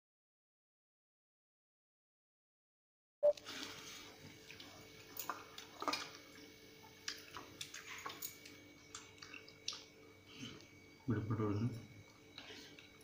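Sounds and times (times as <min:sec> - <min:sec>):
chewing: 0:03.4 - 0:10.9, 0:11.9 - 0:13.0.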